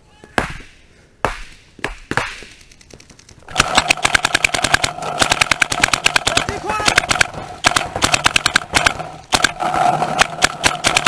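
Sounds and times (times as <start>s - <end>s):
sharp pops: 0.4s - 11.0s
paintball marker firing rapidly: 3.5s - 11.0s.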